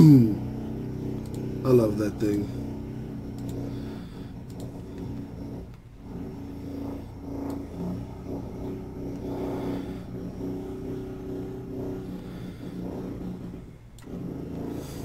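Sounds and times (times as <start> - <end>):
vehicle engine revving: 0.0 - 15.0.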